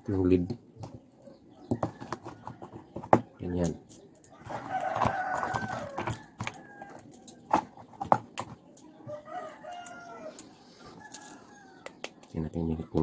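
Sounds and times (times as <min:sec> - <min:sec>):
rooster crowing: 0:04.4 - 0:07.4, 0:09.1 - 0:11.9.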